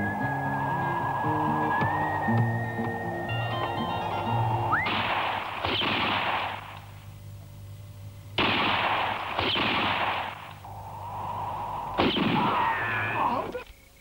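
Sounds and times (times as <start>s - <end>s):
gunshots echoing: 4.8s - 6.8s, 8.4s - 10.5s, 12.0s - 12.6s.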